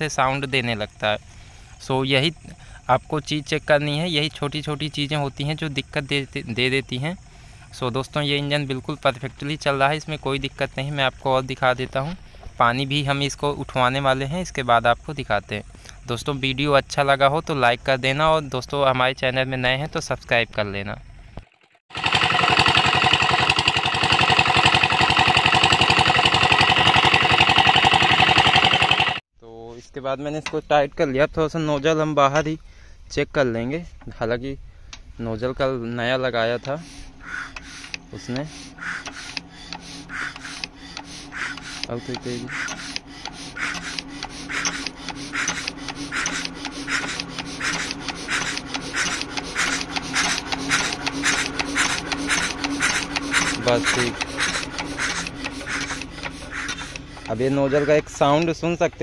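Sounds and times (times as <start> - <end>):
diesel engine running: 21.0 - 29.2, 36.4 - 59.0
water rushing from pipe: 21.9 - 29.2
fuel injector spraying hiss: 22.0 - 29.2, 36.7 - 57.4.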